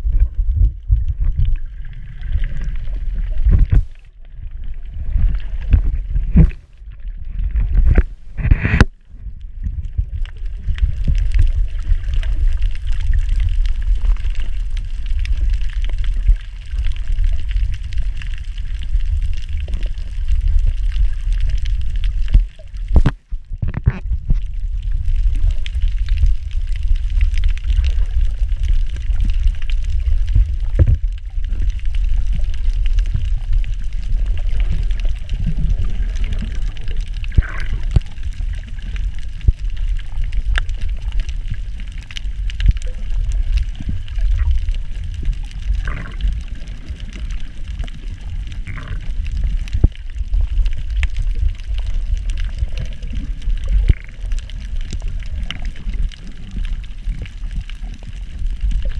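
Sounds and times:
underwater rumble of water: 0.0s - 58.9s
sharp underwater clicks: 7.5s - 9.0s, 25.2s - 58.9s.

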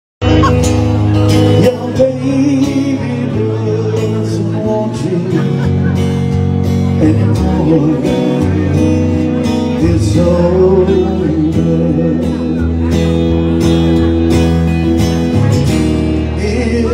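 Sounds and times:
electric guitar through amplifier: 0.2s - 16.9s
man singing into a microphone: 0.5s - 13.6s, 16.0s - 16.9s.

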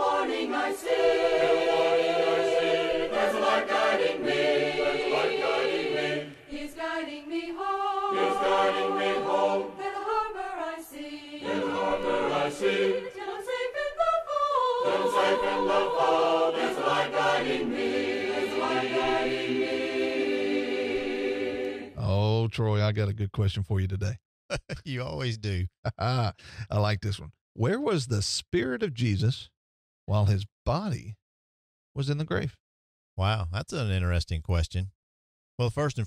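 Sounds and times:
choir singing a cappella: 0.0s - 22.1s.

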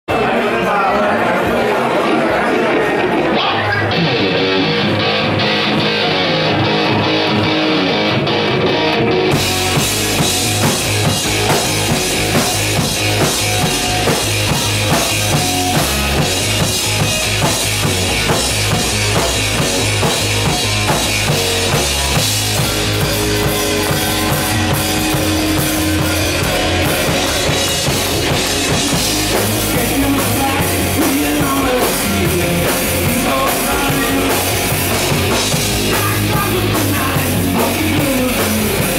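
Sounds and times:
distorted electric guitars: 0.1s - 38.9s
bass guitar: 2.4s - 38.9s
drums and cymbals crashing: 9.3s - 38.9s.

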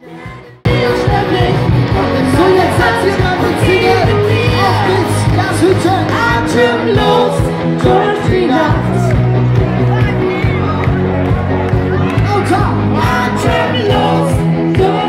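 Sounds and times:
person singing: 0.0s - 9.2s, 12.2s - 15.0s
heavy bass: 0.0s - 15.0s
live band music: 0.0s - 15.0s.

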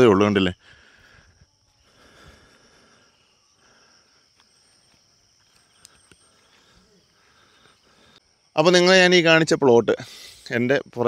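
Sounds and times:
insects chirring: 0.0s - 11.0s
light clicks: 5.4s - 6.2s.

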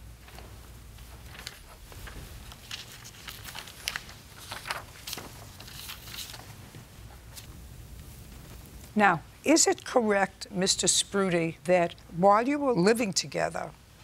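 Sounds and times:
paper rustling: 0.2s - 7.5s.

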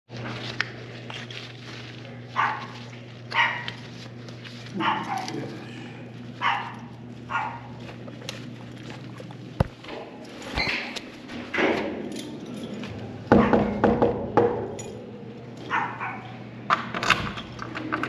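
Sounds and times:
steady low hum: 0.1s - 18.0s
dog barking: 2.4s - 3.8s, 4.7s - 5.5s, 6.4s - 7.8s, 13.3s - 13.8s, 15.7s - 16.4s.

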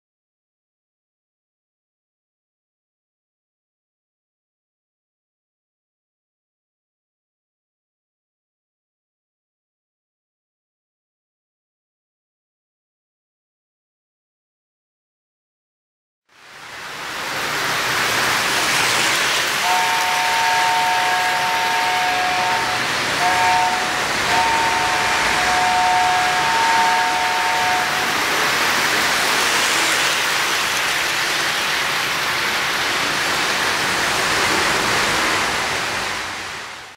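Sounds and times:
two-note train horn signal: 19.6s - 28.3s.

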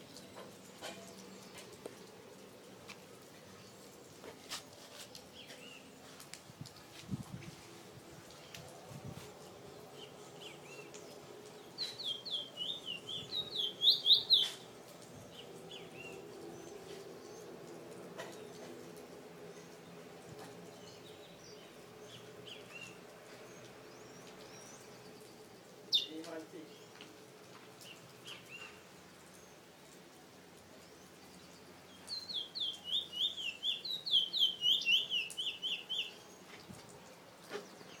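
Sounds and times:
bird chirping: 9.9s - 17.5s, 30.8s - 38.0s
finch singing whistled notes: 11.8s - 14.6s, 32.1s - 36.2s.

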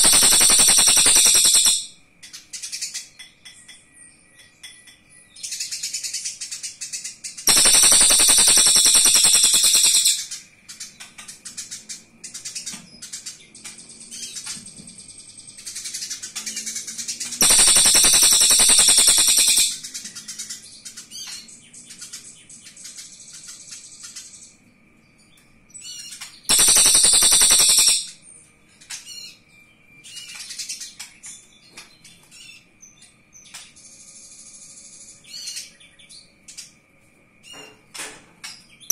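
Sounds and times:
soft bird chirps: 0.0s - 36.8s.

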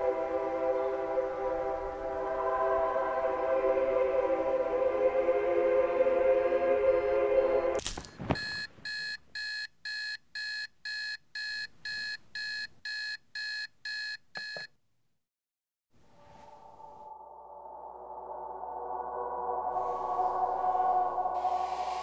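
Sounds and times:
brief swish: 7.8s - 8.7s
alarm clock beeping: 8.4s - 14.7s.

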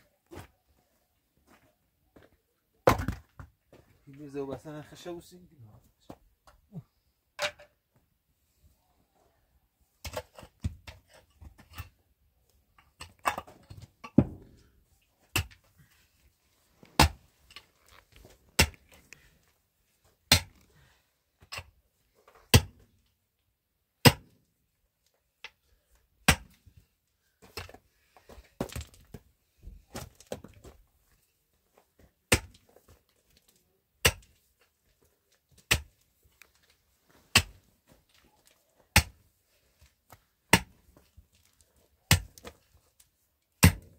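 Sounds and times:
pickaxe striking stony dirt: 13.0s - 14.7s, 15.3s - 15.6s, 17.0s - 17.2s, 18.6s - 18.9s, 20.3s - 20.6s, 22.5s - 22.8s, 24.0s - 24.3s, 26.2s - 26.6s, 32.3s - 32.7s, 34.0s - 34.4s, 35.6s - 36.0s, 37.3s - 37.6s, 38.9s - 39.2s, 40.5s - 40.8s, 42.1s - 42.6s, 43.6s - 43.9s
soil and stones crumbling: 27.5s - 29.3s.

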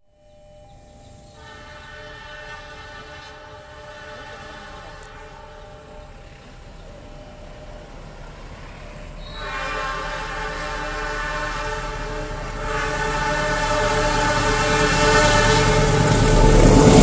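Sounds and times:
low rumble of train: 0.0s - 17.0s
locomotive air horn chord: 0.1s - 17.0s.

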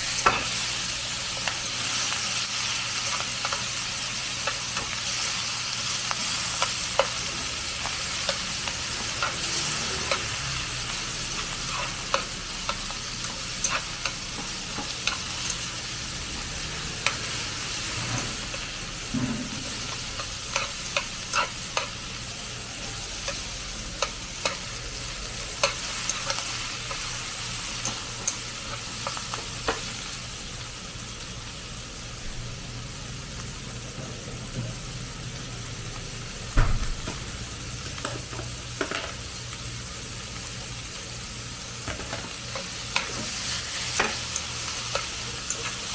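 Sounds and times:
chopsticks clicking and scraping pan: 0.0s - 16.0s, 17.0s - 18.8s, 19.6s - 22.2s, 23.2s - 30.0s, 41.8s - 45.9s
food sizzling in a wok: 0.0s - 45.9s.

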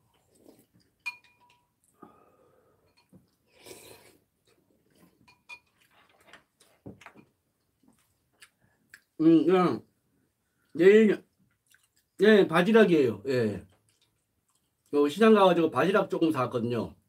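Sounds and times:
spoons clinking against bowls: 1.0s - 1.7s, 2.8s - 3.2s, 5.2s - 5.8s
slurp of soup: 3.4s - 4.3s.

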